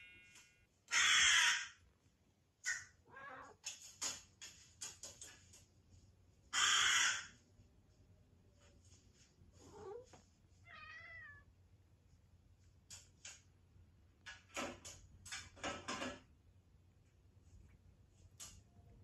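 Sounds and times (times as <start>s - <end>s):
crow cawing from television: 0.9s - 1.8s, 6.5s - 7.3s
cat meowing: 3.0s - 3.6s, 9.6s - 11.5s.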